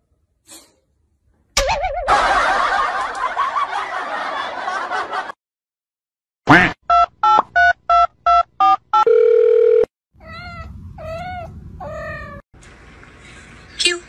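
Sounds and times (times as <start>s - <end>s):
kitten meowing: 10.2s - 12.4s.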